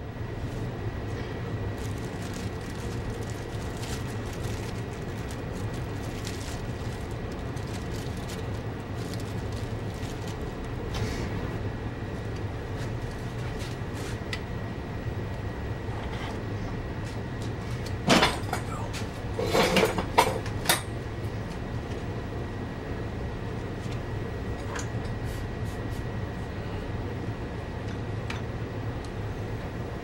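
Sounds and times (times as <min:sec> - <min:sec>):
steady low hum: 0:00.0 - 0:30.0
small objects rattling: 0:01.8 - 0:10.4.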